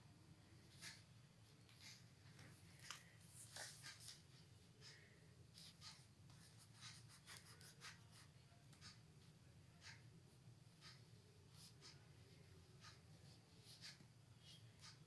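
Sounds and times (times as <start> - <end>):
pencil scratching on paper: 5.5 - 9.0.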